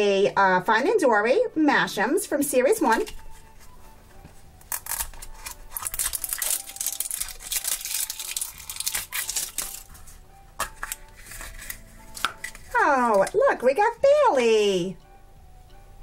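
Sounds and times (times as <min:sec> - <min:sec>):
plastic shrink-wrap crinkling: 0:04.7 - 0:12.8.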